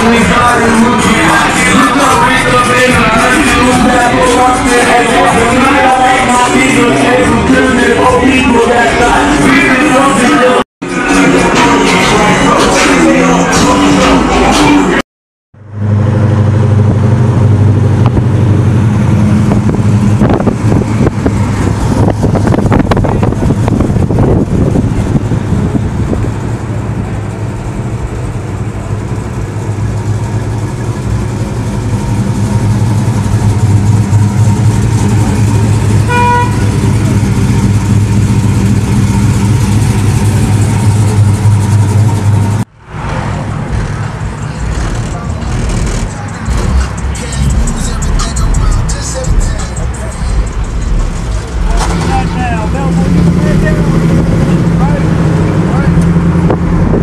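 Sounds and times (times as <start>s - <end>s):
car engine running: 0.0s - 57.0s
car horn toot: 35.8s - 37.2s.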